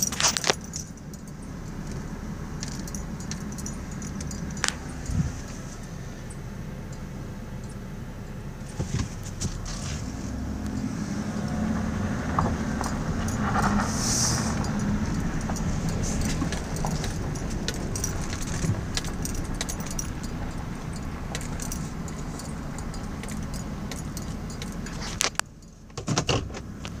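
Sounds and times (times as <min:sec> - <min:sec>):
gravel crackles and clicks: 0:00.0 - 0:01.0, 0:11.4 - 0:25.5
engine and tyre rumble: 0:00.0 - 0:27.0.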